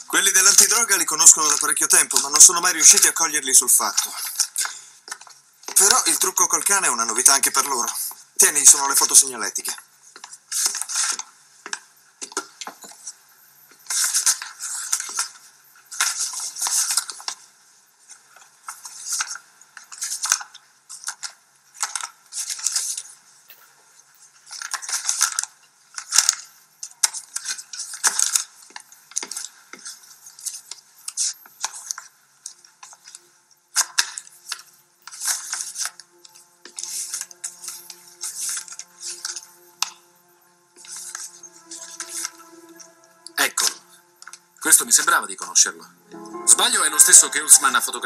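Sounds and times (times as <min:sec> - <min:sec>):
faint music: 0:00.0 - 0:48.0
paper rustling: 0:10.2 - 0:13.1, 0:13.9 - 0:17.5, 0:18.1 - 0:23.2, 0:24.2 - 0:40.2, 0:40.8 - 0:45.0.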